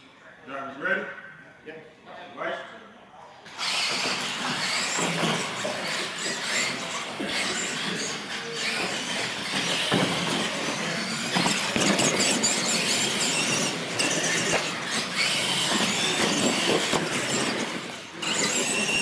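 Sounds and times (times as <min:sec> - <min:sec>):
rc truck motors whining: 0:03.5 - 0:19.0
tyre noise on concrete: 0:03.5 - 0:19.0
toy trucks knocking: 0:03.6 - 0:19.0.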